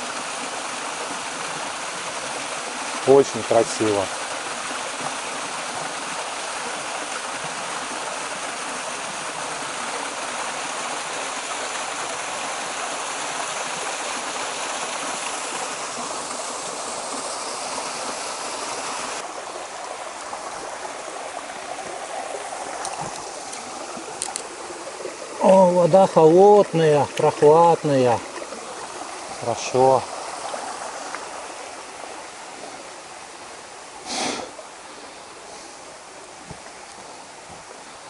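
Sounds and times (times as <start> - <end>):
waterfall splashing into pool: 0.0 - 31.3.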